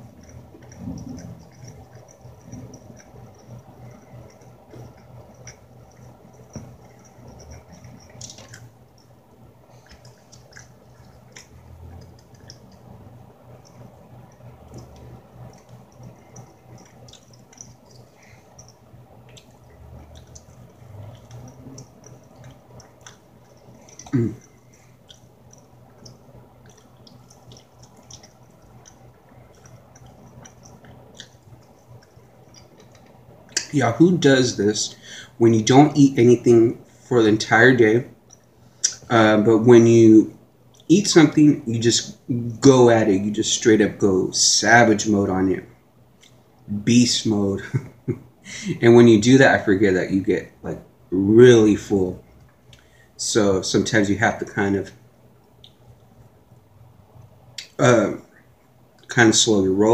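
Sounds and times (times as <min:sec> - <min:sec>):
wet chewing and mouth sounds: 0:00.0 - 0:33.8, 0:46.2 - 0:46.4, 0:55.4 - 0:57.8
low steady hum: 0:00.0 - 0:59.9.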